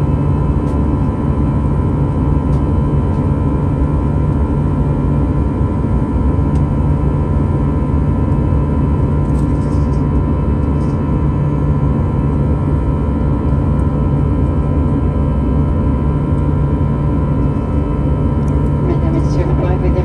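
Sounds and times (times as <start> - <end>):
jet engines in cabin: 0.0 - 20.0.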